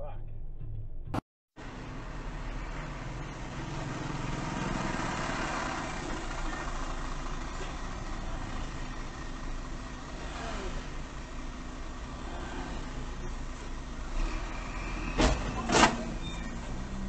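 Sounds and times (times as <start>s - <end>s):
car engine idling: 1.6s - 14.2s
vehicles passing: 1.6s - 17.0s.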